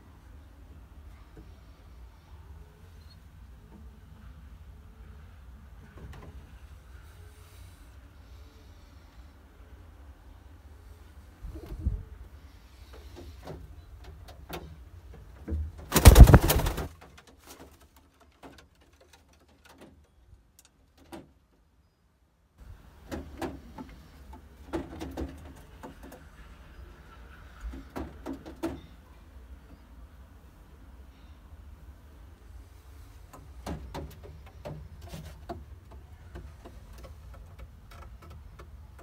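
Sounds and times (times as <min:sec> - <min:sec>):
loud brief rustling: 0:15.9 - 0:16.9.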